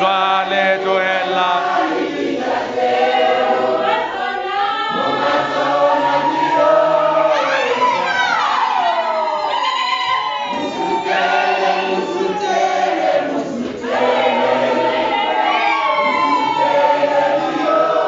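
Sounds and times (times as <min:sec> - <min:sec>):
congregation singing: 0:00.0 - 0:18.0.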